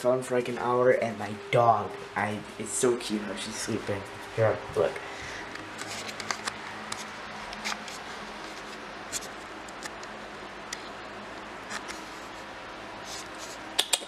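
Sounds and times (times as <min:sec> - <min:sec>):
steady low hum: 0:00.0 - 0:14.0
camera handling clicks and rustles: 0:05.5 - 0:08.7.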